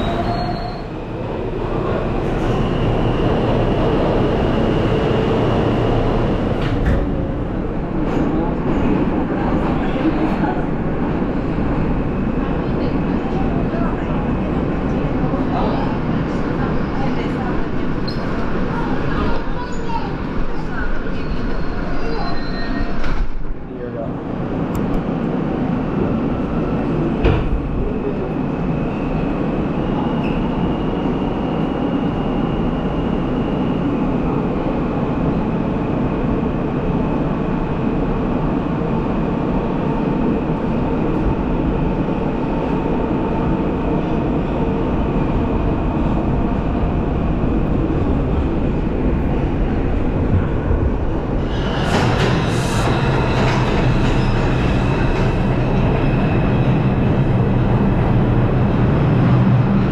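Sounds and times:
subway train wheels rumbling on rail: 0:00.0 - 0:59.9
train pulling into station: 0:00.0 - 0:59.9.

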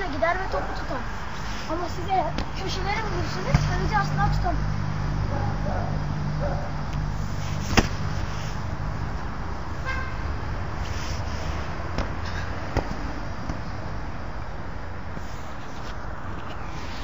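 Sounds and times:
football thudding when struck: 0:07.7 - 0:08.0.

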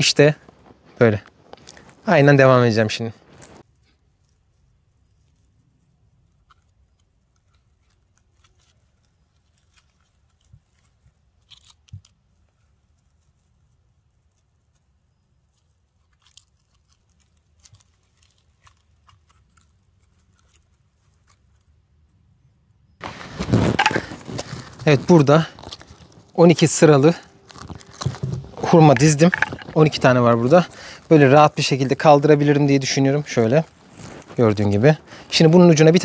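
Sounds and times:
soft clicks and handling: 0:27.1 - 0:31.1.

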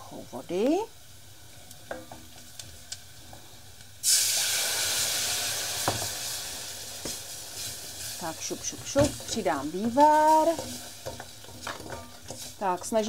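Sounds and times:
water hissing in hot pan: 0:00.0 - 0:13.0
wooden spoon tapping pan: 0:08.5 - 0:13.0.

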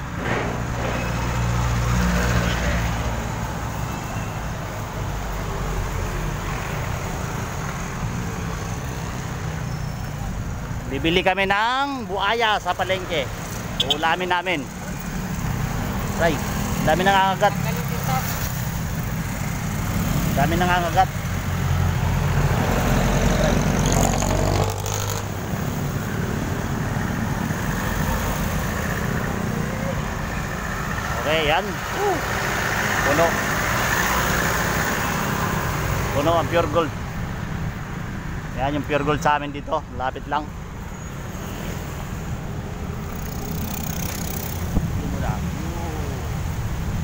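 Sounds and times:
vehicle engine rumbling close: 0:00.0 - 0:11.0
busy road traffic passing: 0:00.0 - 0:47.0
low rumble of engines and tyres: 0:00.0 - 0:47.0.

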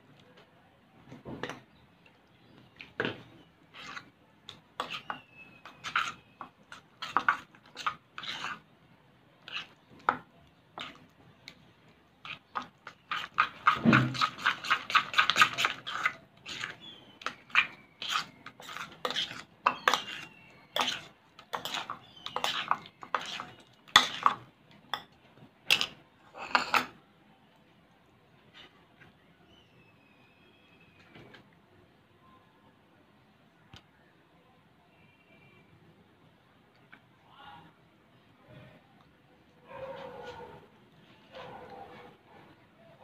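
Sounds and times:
metal spoon scraping a bowl: 0:03.0 - 0:08.7, 0:09.4 - 0:10.2, 0:10.8 - 0:11.1, 0:12.2 - 0:25.1, 0:25.7 - 0:27.0.

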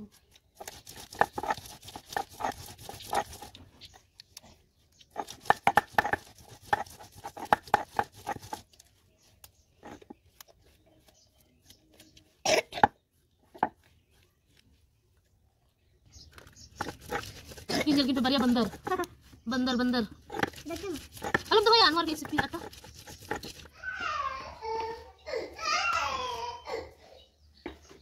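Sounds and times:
stone grinding paste: 0:00.6 - 0:03.6, 0:05.0 - 0:11.1, 0:16.4 - 0:23.7
grinding stone knocking on slab: 0:05.2 - 0:08.6, 0:20.2 - 0:23.7.

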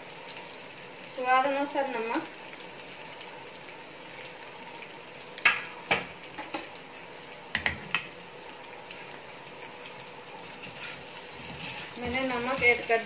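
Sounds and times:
potatoes sizzling in oil: 0:00.0 - 0:13.0
metal spatula scraping pan: 0:10.6 - 0:13.0.

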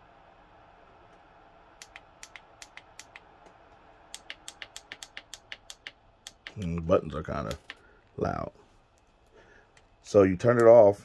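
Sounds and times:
faint fan whir: 0:00.0 - 0:11.0.

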